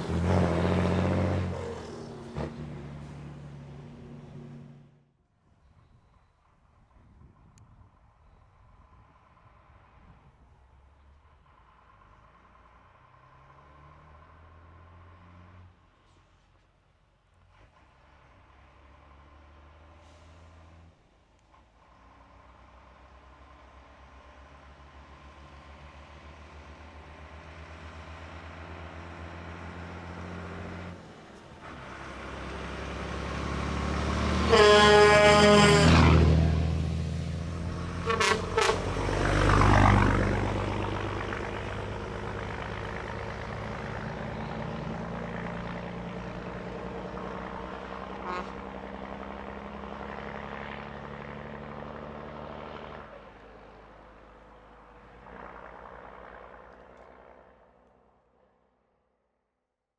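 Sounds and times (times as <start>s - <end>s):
trucks driving past: 0.0s - 58.7s
brief horn toots: 34.4s - 36.2s, 38.0s - 39.0s, 48.2s - 48.6s
air horn blast: 34.4s - 36.4s, 38.0s - 39.1s, 48.2s - 48.6s.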